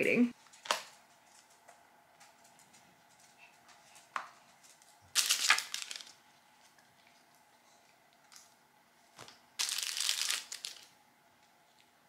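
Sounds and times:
plastic wrapping crinkling: 4.5s - 6.8s, 9.2s - 10.9s.

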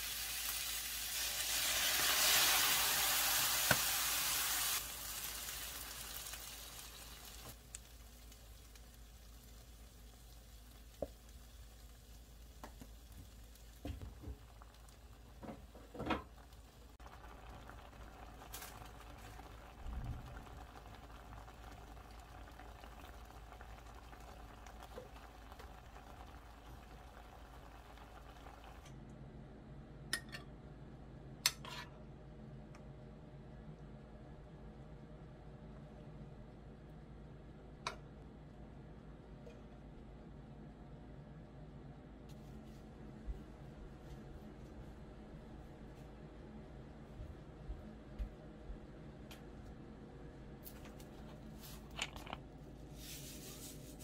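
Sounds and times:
food sizzling in a frying pan: 0.0s - 28.9s
sauce simmering: 0.0s - 28.9s.

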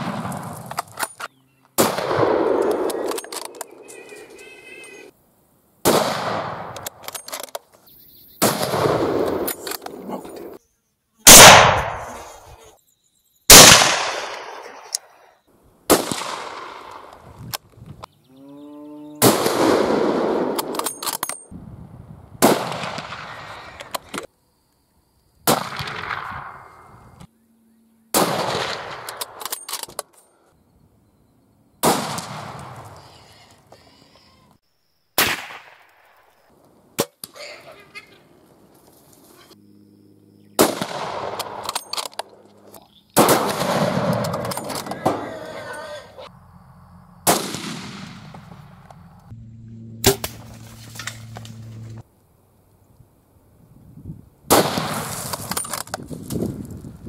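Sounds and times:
rifle shots: 1.8s - 3.8s, 5.8s - 7.0s, 8.4s - 9.6s, 11.3s - 12.3s, 13.5s - 14.8s, 15.9s - 17.1s, 19.2s - 21.4s, 28.1s - 29.7s, 40.6s - 42.1s, 43.2s - 45.2s, 47.2s - 48.6s, 54.5s - 55.2s.

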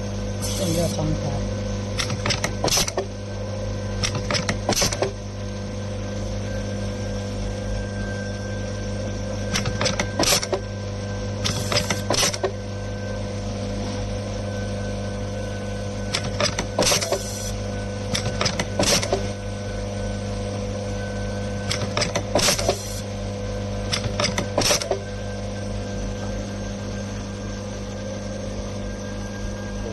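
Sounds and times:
machine motor hum: 0.0s - 29.9s
sharp mechanical clacks: 2.0s - 3.1s, 4.0s - 5.2s, 23.9s - 25.0s.

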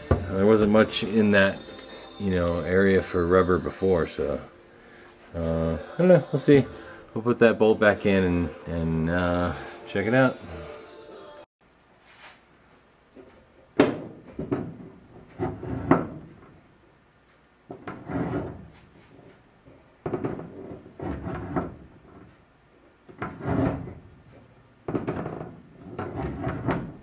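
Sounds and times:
vent lid scraping and clunking: 13.9s - 16.5s, 24.9s - 27.0s.

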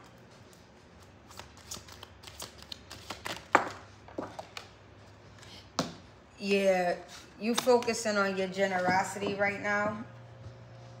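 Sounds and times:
cards tapping and flicking: 1.3s - 4.8s.

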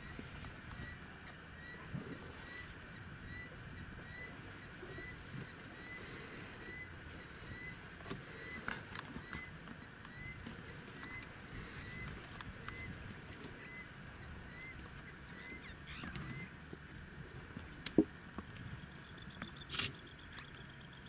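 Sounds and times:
bird calling repeated note: 13.6s - 16.6s.

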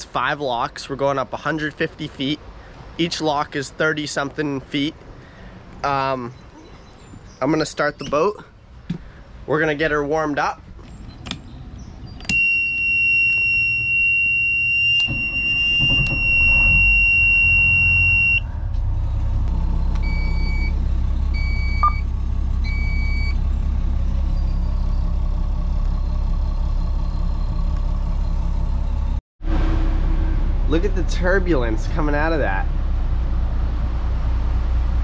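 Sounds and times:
short electronic beeps: 12.2s - 18.4s, 21.4s - 22.1s.

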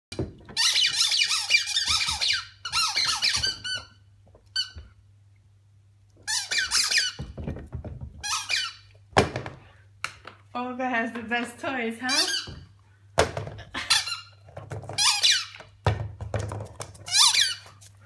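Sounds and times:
squeaky toy squeaking: 0.6s - 4.8s, 6.2s - 7.2s, 8.2s - 8.9s, 12.1s - 12.6s, 15.0s - 15.6s, 17.1s - 17.7s.

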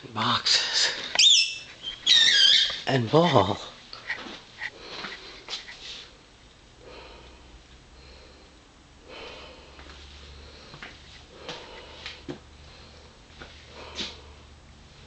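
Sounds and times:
soft breathy sniffs: 4.0s - 6.2s, 12.8s - 14.5s.

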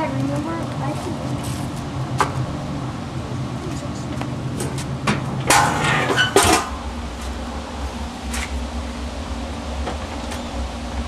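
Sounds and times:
steady low hum: 0.0s - 11.0s
clattering and rustling of dishes: 4.6s - 6.7s.

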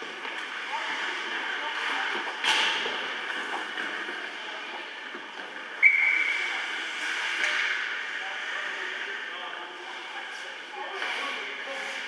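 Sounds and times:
referee's whistle: 5.8s - 6.4s.

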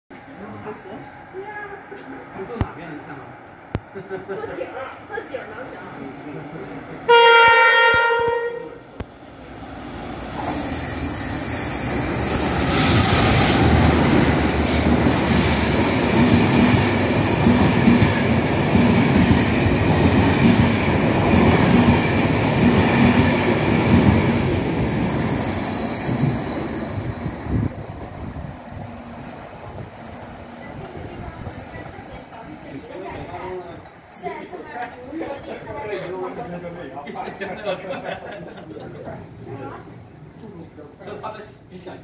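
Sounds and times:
train wheels on rails: 9.0s - 34.8s.

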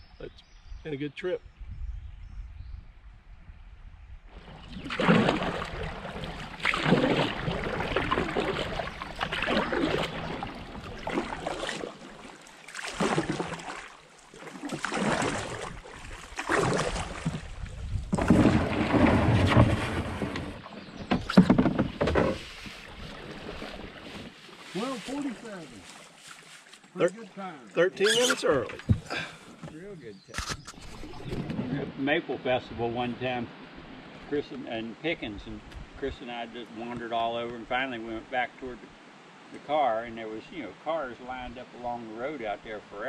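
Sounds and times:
canoe hull scraping over rocks: 14.4s - 26.6s.

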